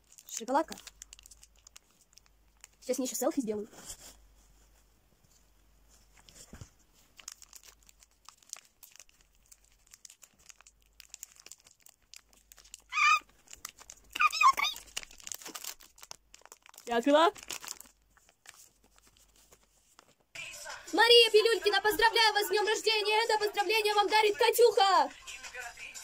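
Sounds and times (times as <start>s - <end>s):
wrapper crinkling and tearing: 0.0s - 3.2s, 7.0s - 20.2s.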